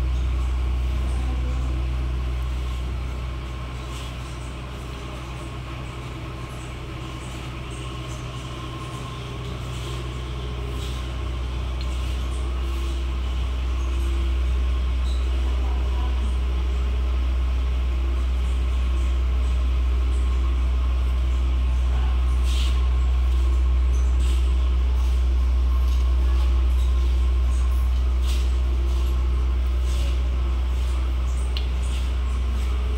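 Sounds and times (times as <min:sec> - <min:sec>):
low mechanical hum: 0:00.0 - 0:32.9.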